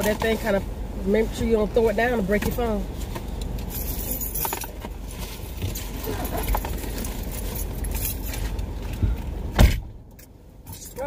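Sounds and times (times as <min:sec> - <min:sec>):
outside vehicle noise: 0:00.0 - 0:11.0
rustling and jangling: 0:02.6 - 0:09.3
car door slamming: 0:09.0 - 0:10.0.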